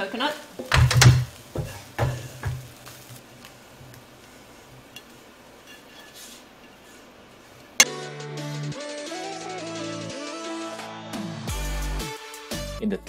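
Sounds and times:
faint steady hiss: 0.0s - 7.8s
wooden spatula knocking on pan: 0.6s - 2.7s.

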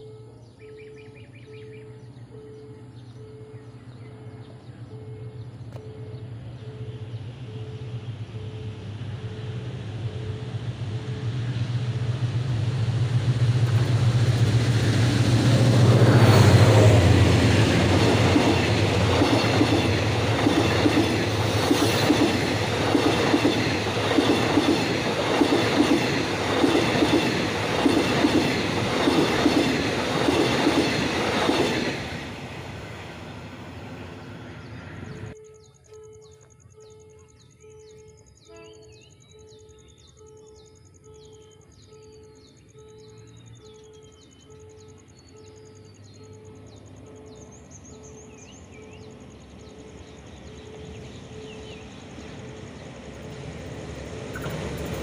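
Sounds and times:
locomotive engine drone: 0.0s - 55.0s
train wheels clickety-clack: 11.3s - 33.1s, 53.2s - 55.0s.

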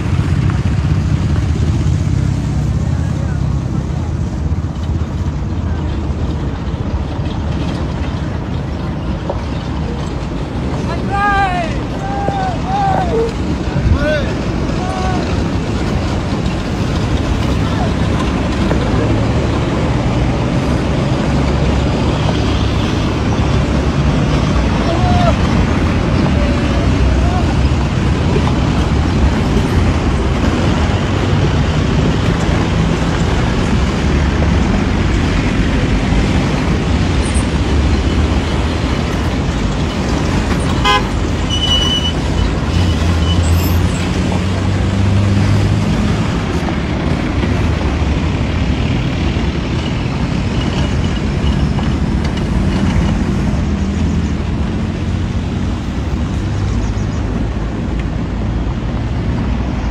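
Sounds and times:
vehicles rumbling on dirt road: 0.0s - 59.9s
vehicle horn toot: 40.8s - 42.2s.

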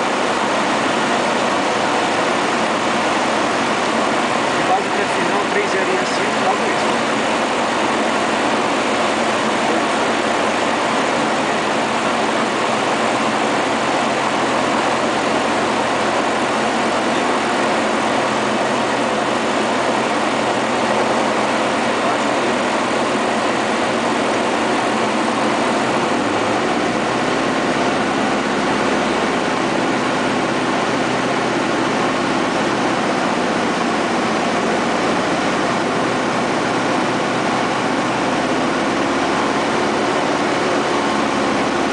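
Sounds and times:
aircraft engine and propeller: 0.0s - 41.9s.

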